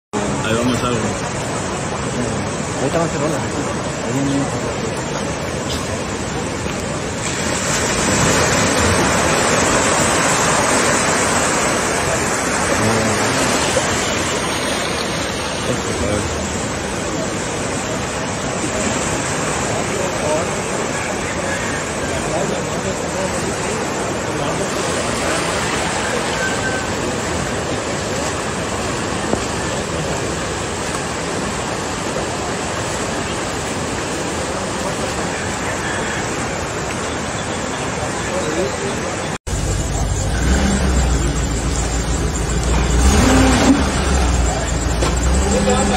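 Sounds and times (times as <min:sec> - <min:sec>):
floodwater rushing: 0:00.2 - 0:45.9.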